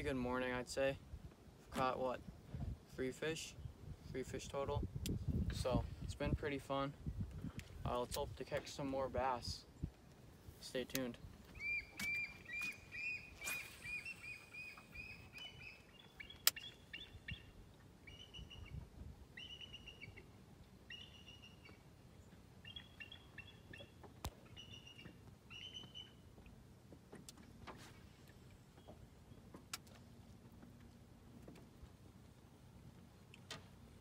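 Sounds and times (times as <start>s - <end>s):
bird calling: 11.4s - 18.8s, 19.4s - 26.2s.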